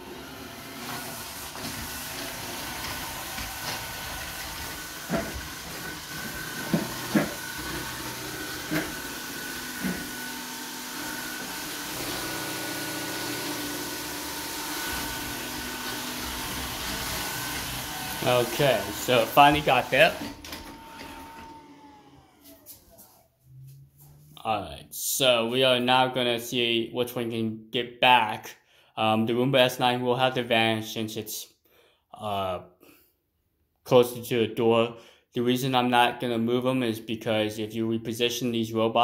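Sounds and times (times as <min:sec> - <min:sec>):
robot vacuum whirring: 0:00.0 - 0:23.0.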